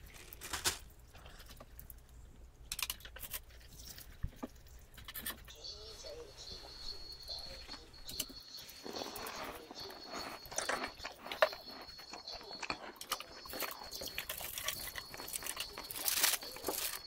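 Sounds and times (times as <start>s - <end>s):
person chewing and slurping: 8.1s - 17.0s.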